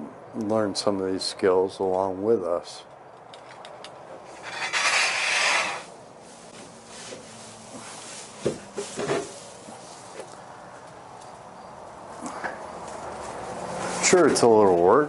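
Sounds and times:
pitchfork rustling straw: 4.4s - 10.3s, 12.8s - 14.5s.

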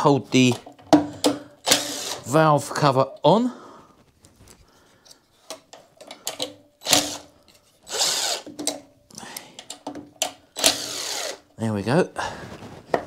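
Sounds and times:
cordless drill spinning: 1.6s - 2.4s, 6.8s - 8.6s, 10.6s - 11.5s.

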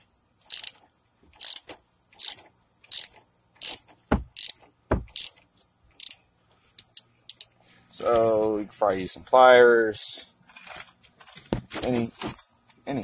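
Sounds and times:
ratchet wrench clicking: 0.4s - 0.8s, 1.4s - 5.4s, 6.0s - 6.2s, 6.8s - 7.5s.

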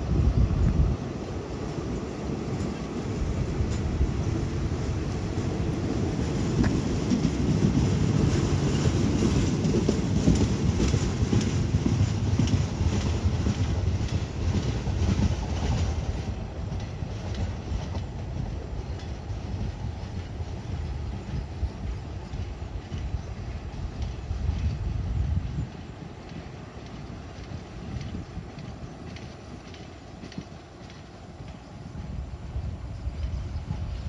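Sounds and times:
train coaches rumbling: 0.0s - 34.0s
wheels clicking over rail joints: 1.6s - 34.0s.

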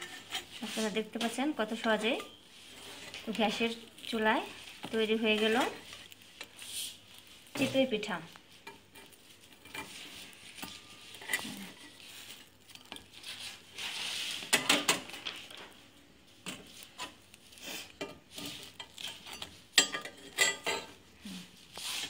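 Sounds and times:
metal spatula scraping metal mould: 0.0s - 1.0s, 8.6s - 14.7s.

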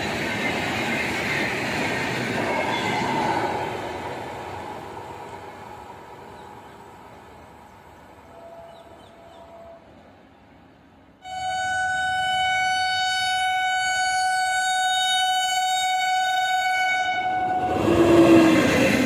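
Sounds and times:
train passing at speed: 0.0s - 19.0s
train horn blast: 11.2s - 18.0s.

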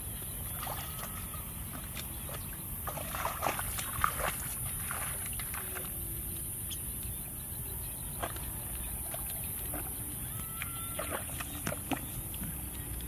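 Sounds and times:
footsteps splashing through mud: 0.5s - 6.0s.

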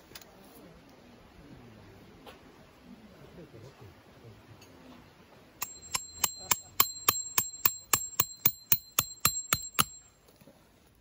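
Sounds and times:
hammer striking metal tent peg: 5.6s - 10.1s.

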